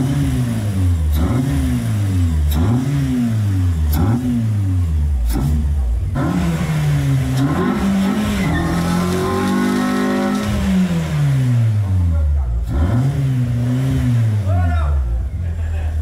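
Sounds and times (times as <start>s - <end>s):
car engine revving: 0.0s - 16.0s
exhaust crack: 3.7s - 15.9s.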